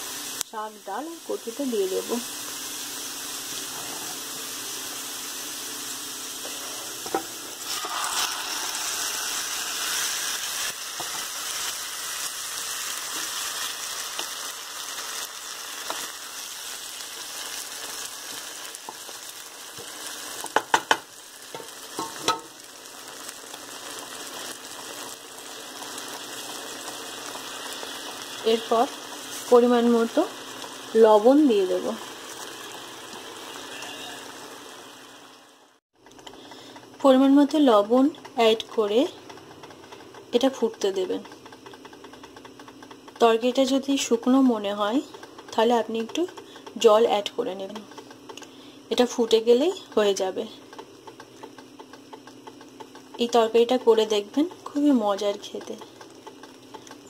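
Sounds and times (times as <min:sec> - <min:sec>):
oil sizzling in a frying pan: 0:00.0 - 0:35.8, 0:36.6 - 0:57.0
knocks against a pan: 0:20.5 - 0:22.5.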